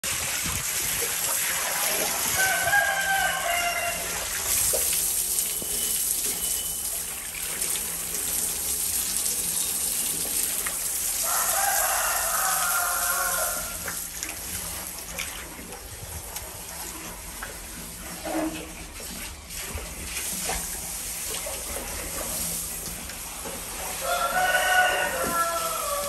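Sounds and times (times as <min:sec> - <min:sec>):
water splashing into pond: 0:00.0 - 0:26.0
rooster crowing: 0:02.3 - 0:04.2, 0:11.2 - 0:13.8, 0:24.0 - 0:26.0.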